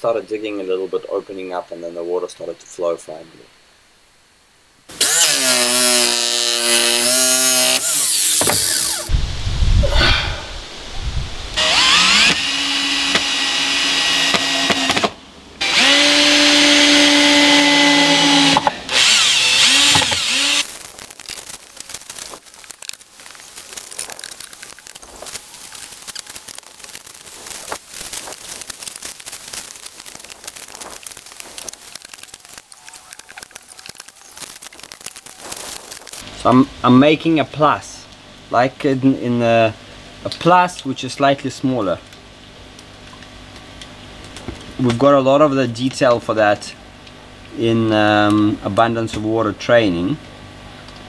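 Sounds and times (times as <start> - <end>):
power tool motor whine: 4.9 - 9.1, 11.6 - 20.7.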